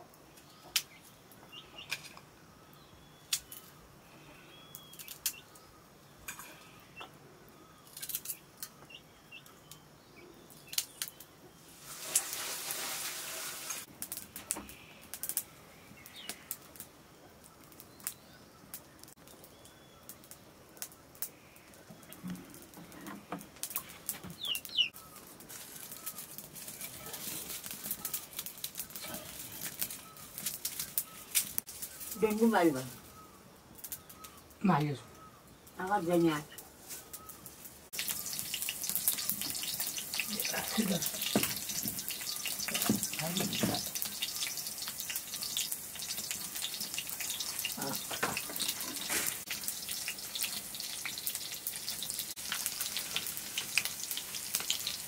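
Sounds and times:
small birds chirping: 0.0s - 11.7s, 14.1s - 55.0s
rustling noise: 11.6s - 14.3s, 25.1s - 32.2s, 36.7s - 37.9s.

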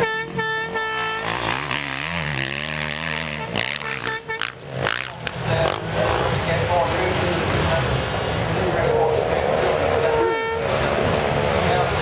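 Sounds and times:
steady horn-like note: 0.0s - 4.5s
motocross bike engines revving: 0.0s - 12.0s.

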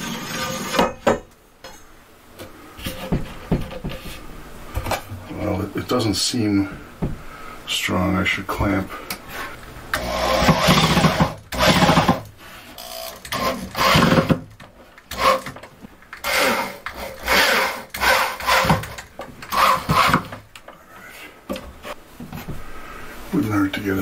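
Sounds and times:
electric drill bursts: 9.9s - 12.2s, 12.8s - 14.4s, 15.1s - 15.5s, 16.2s - 18.9s, 19.5s - 20.2s.

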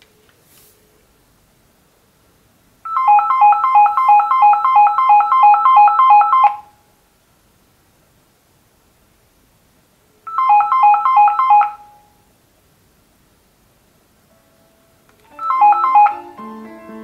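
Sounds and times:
phone electronic ringtone: 2.9s - 6.7s, 10.3s - 12.1s, 15.3s - 16.5s.

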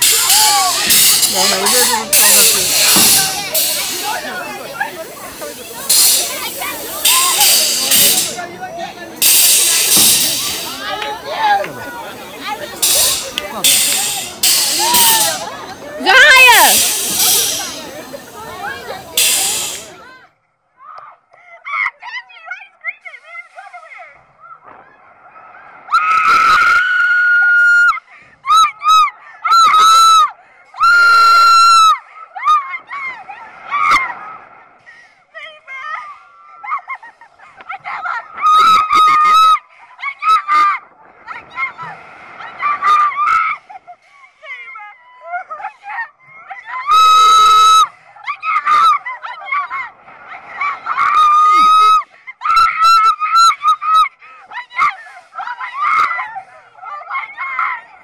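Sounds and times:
young women screaming: 0.0s - 3.5s, 14.2s - 16.9s, 25.9s - 34.2s, 37.8s - 40.8s, 42.5s - 43.7s, 46.6s - 57.8s.

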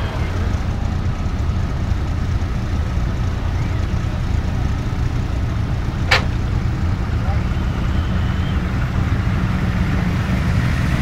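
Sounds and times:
car engines rumbling: 0.0s - 11.0s
sharp click: 6.1s - 6.4s.

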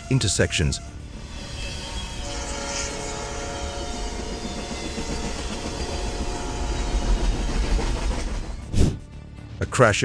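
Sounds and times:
freight train rumbling on rails: 1.0s - 9.0s.

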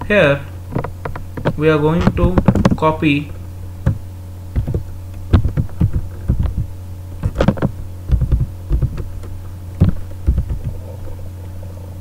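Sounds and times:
low electrical hum: 0.0s - 12.0s
keyboard typing: 7.2s - 9.1s, 9.8s - 10.8s.

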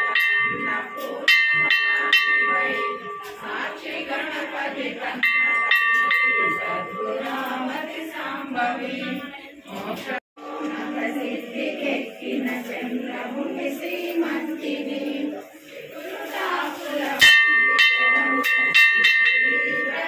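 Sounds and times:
temple bell rung by hand: 0.0s - 9.2s, 16.5s - 20.0s
group devotional chanting: 0.0s - 20.0s.

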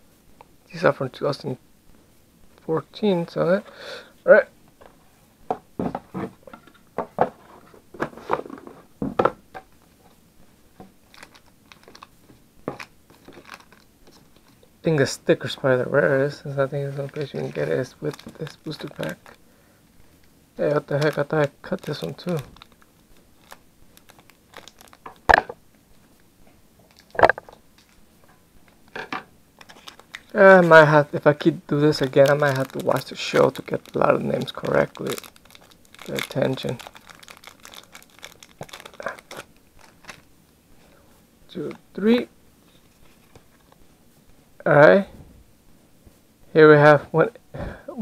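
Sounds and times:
foil pack crinkling: 11.0s - 12.1s, 12.7s - 14.6s, 16.2s - 19.4s, 20.6s - 25.4s, 26.8s - 27.2s, 29.6s - 40.3s
foil pack handling noises: 11.0s - 12.1s, 12.7s - 14.6s, 16.2s - 19.4s, 20.7s - 25.3s, 29.6s - 40.3s.

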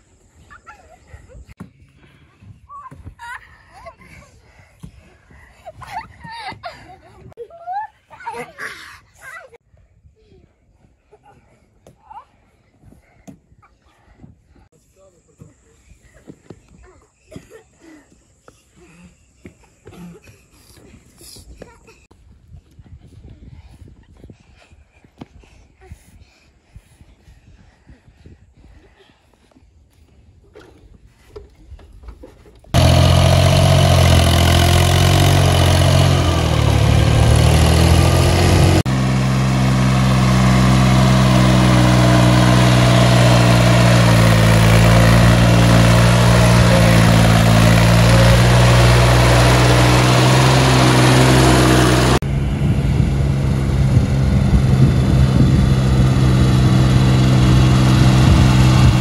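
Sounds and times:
tractor diesel engine running: 32.8s - 59.0s.

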